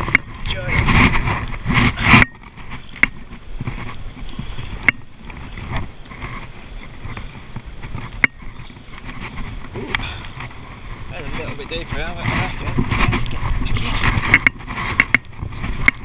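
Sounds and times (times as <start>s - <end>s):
paddle splashing in water: 0.7s - 11.1s.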